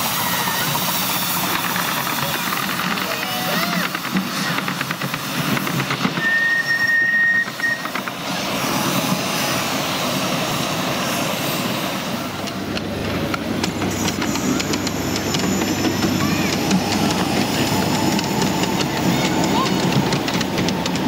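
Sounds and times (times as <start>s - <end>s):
miniature steam locomotive: 0.0s - 21.0s
wheels clicking over rails: 0.7s - 8.4s, 12.4s - 21.0s.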